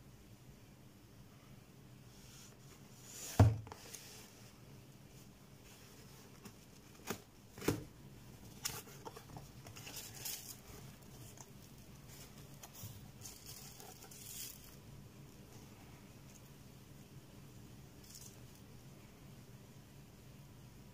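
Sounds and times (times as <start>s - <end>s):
plastic wrap and cardboard crinkling: 8.4s - 14.8s.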